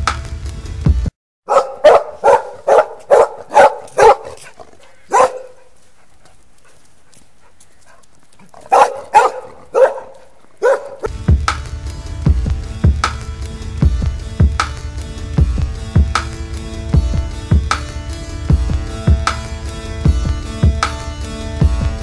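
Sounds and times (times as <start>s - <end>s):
dog barking: 1.5s - 5.8s, 7.9s - 11.1s.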